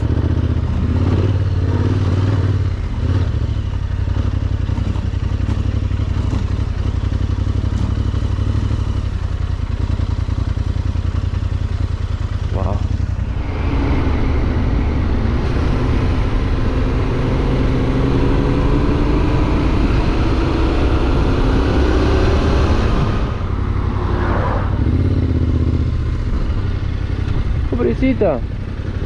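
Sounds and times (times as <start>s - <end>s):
motorcycle engine revving: 0.0s - 29.0s.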